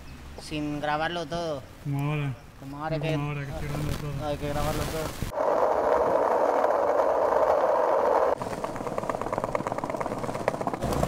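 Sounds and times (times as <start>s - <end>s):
skateboard wheels rolling on asphalt: 3.6s - 11.0s
skateboard wheels clicking over tiles: 5.4s - 11.0s.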